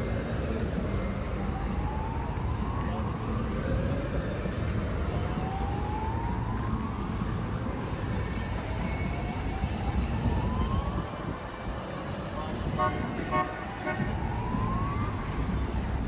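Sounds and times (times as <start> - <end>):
city traffic rumble: 0.0 - 16.0
siren rising sweeps: 5.0 - 11.4, 13.6 - 16.0.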